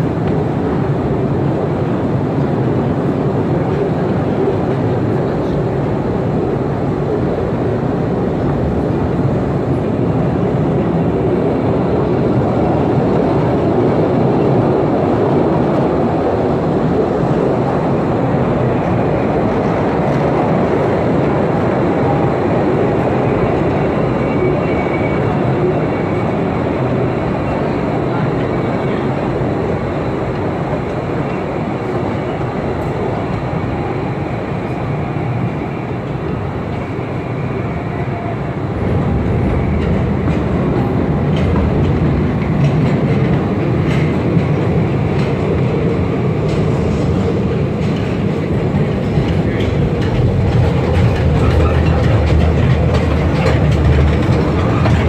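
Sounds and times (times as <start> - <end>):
train wheels on rails: 0.0 - 55.0.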